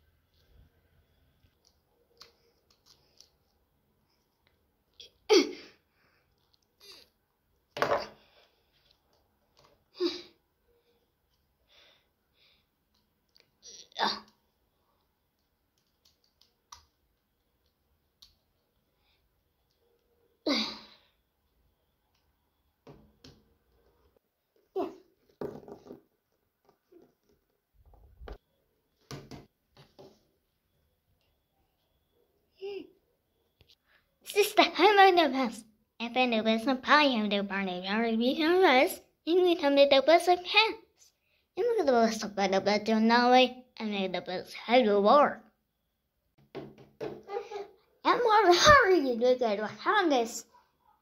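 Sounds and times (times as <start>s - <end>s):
plastic toys knocking on table: 7.8s - 8.2s, 25.3s - 26.1s, 46.4s - 47.3s.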